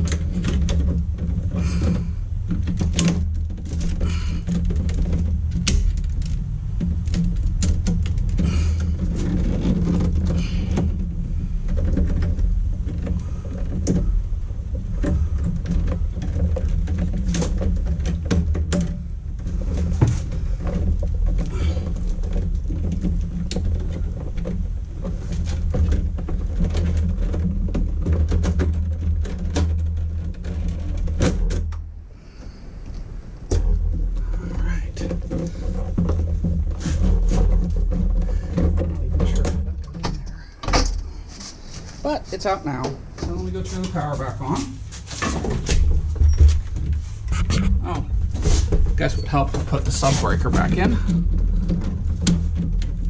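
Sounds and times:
low rumble: 0:00.0 - 0:53.0
wire scraping against metal: 0:32.4 - 0:53.0.

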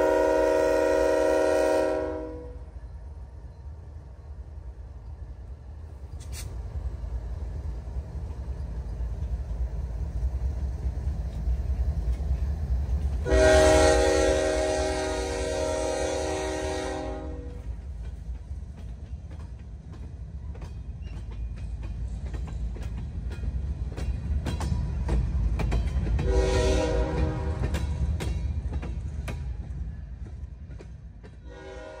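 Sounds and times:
locomotive horn: 0:00.0 - 0:02.8, 0:13.2 - 0:17.7, 0:26.2 - 0:27.8, 0:31.4 - 0:32.0
freight train rumbling: 0:00.0 - 0:32.0
wheels clicking over rail joints: 0:17.4 - 0:31.6.

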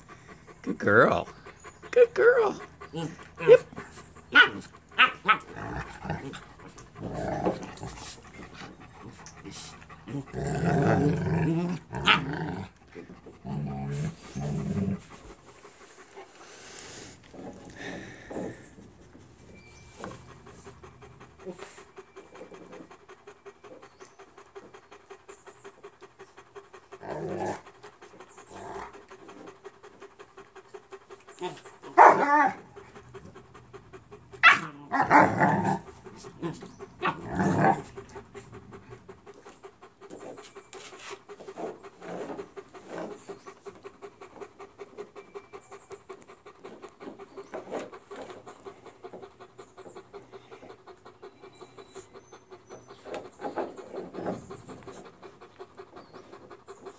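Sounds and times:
dog panting: 0:00.0 - 0:56.9
dogs growling at play: 0:00.0 - 0:56.9.

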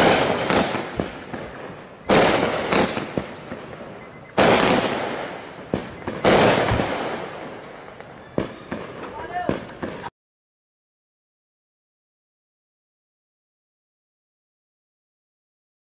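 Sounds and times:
firework pops: 0:00.0 - 0:10.1.

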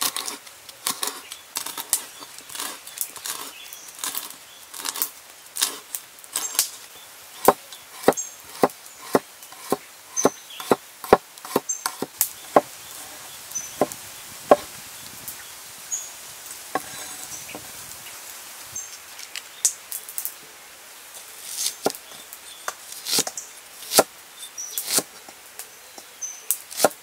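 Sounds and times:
knife chopping on wooden board: 0:07.4 - 0:13.2, 0:13.8 - 0:14.7, 0:26.7 - 0:27.0.

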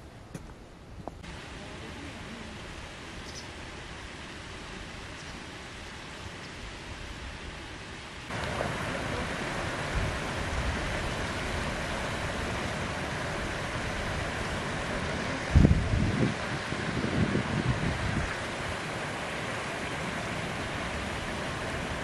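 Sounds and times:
wind buffeting microphone: 0:09.7 - 0:19.0.

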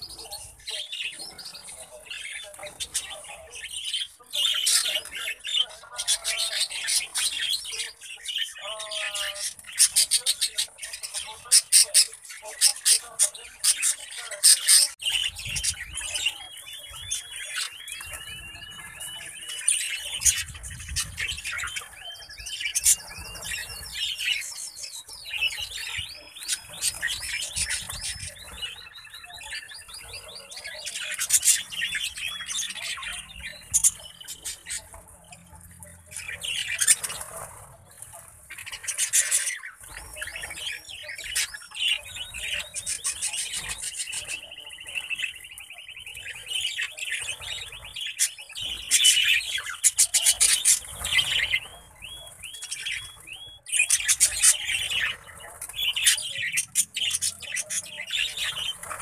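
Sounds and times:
budgerigars chattering: 0:00.0 - 0:59.0.

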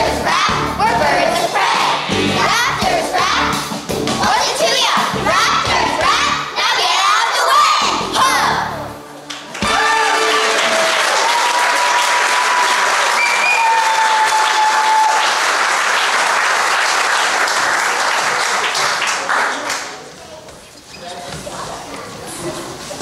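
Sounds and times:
audience applauding and cheering: 0:09.3 - 0:20.0.

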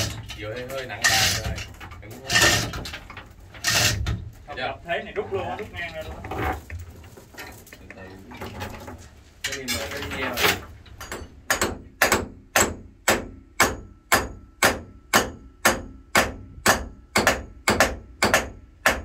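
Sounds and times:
hammer striking with ring: 0:11.0 - 0:19.0.

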